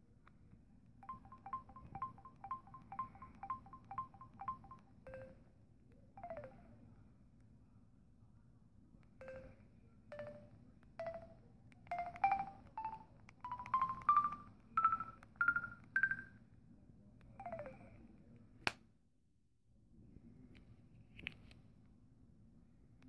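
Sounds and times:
phone keypad beeps: 0:01.0 - 0:05.4, 0:06.2 - 0:06.7, 0:09.2 - 0:09.6, 0:10.2 - 0:16.3, 0:17.4 - 0:18.0.

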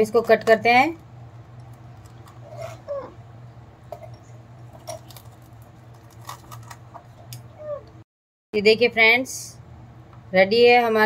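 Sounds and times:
steady low hum: 0:00.0 - 0:08.0.

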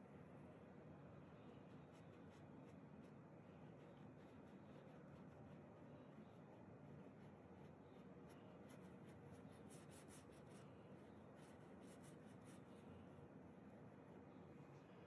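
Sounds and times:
low room hiss: 0:00.0 - 0:15.0
painting tool scratching canvas: 0:07.0 - 0:12.9.

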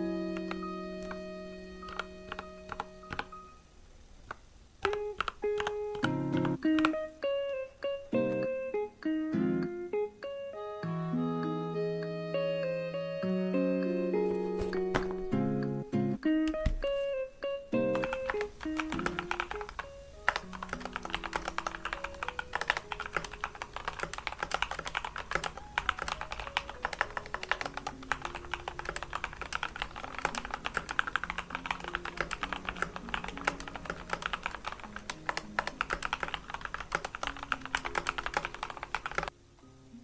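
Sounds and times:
soft background music: 0:00.0 - 0:03.7, 0:04.8 - 0:40.0
mechanical keyboard typing: 0:00.3 - 0:03.5, 0:04.3 - 0:08.5, 0:17.7 - 0:39.3.

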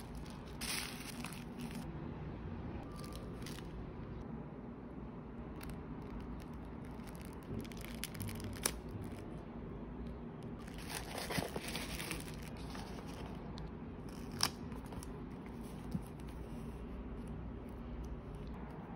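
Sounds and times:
paper crinkling: 0:00.0 - 0:01.9, 0:10.6 - 0:16.7
low steady hum: 0:00.0 - 0:18.9.

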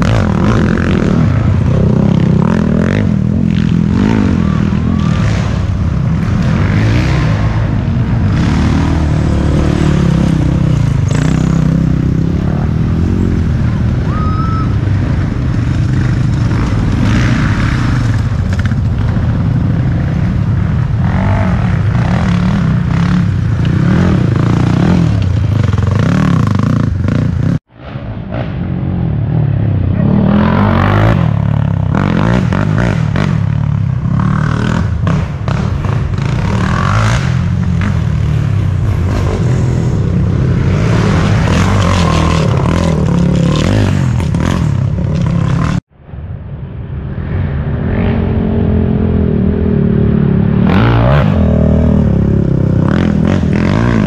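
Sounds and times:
quad engine revving: 0:00.0 - 0:27.6, 0:30.0 - 0:45.8, 0:47.9 - 0:54.0.

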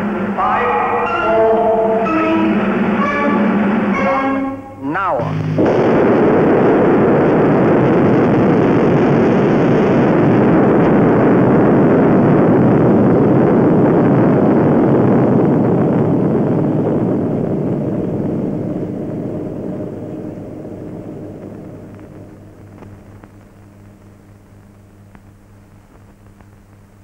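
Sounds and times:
explosion rumbling: 0:05.2 - 0:23.6.

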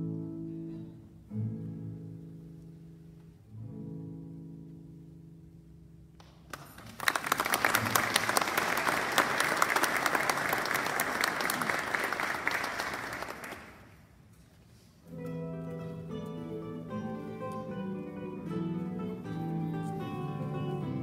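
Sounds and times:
classical guitar notes: 0:00.0 - 0:06.2, 0:15.0 - 0:21.0
audience applauding: 0:06.2 - 0:14.0.

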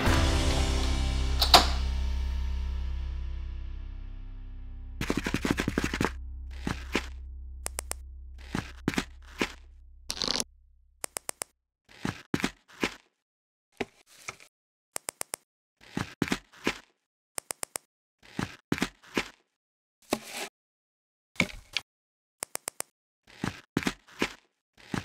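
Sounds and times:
held low music note: 0:00.0 - 0:11.0
plastic toy parts clicking together: 0:22.4 - 0:22.9.

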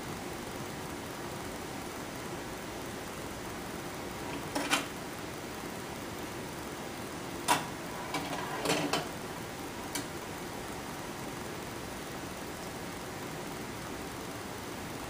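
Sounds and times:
sharp clicks and clatters: 0:07.5 - 0:09.1.

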